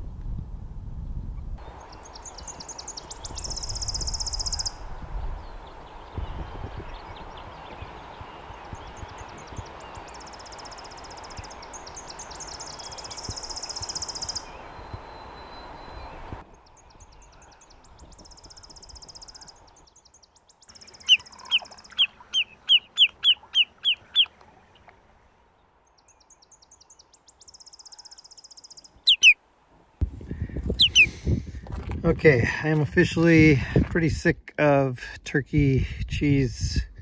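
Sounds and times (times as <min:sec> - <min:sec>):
bird trilling: 0:01.6 - 0:04.9, 0:08.5 - 0:19.7, 0:20.7 - 0:24.8, 0:26.8 - 0:29.4, 0:30.7 - 0:31.2.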